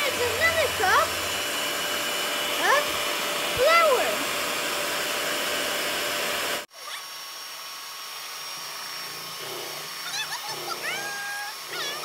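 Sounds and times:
electric hand mixer whisking: 0:00.0 - 0:12.0.

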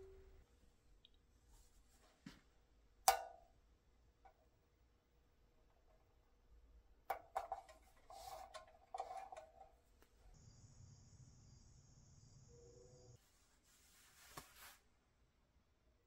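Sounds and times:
faint hum with hiss: 0:07.8 - 0:16.0.

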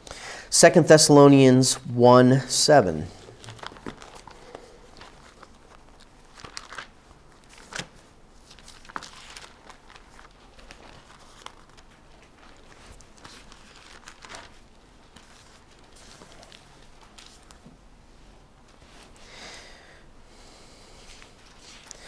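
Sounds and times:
thin pages rustling and turning: 0:03.2 - 0:17.8, 0:21.1 - 0:22.0.

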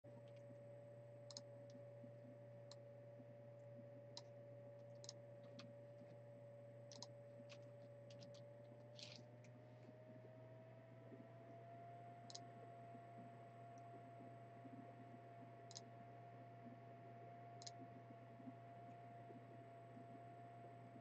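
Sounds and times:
faint irregular clicks: 0:00.1 - 0:09.9, 0:11.0 - 0:21.0
low electrical hum: 0:00.1 - 0:21.0
thin steady tone: 0:11.0 - 0:21.0.

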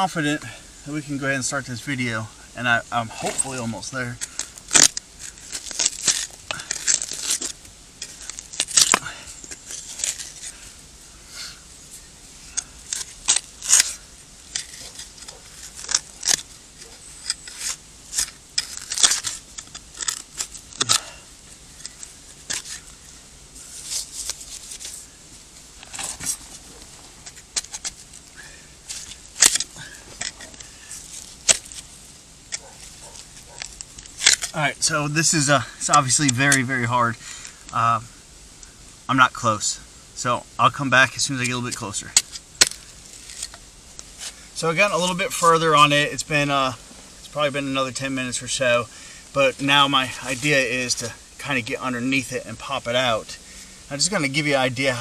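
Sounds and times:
knife scraping hard dirt: 0:02.9 - 0:10.7, 0:12.5 - 0:25.1, 0:25.8 - 0:31.9.

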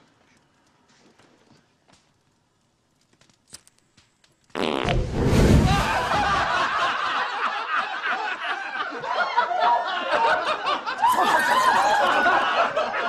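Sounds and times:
group of people laughing: 0:05.7 - 0:13.0.

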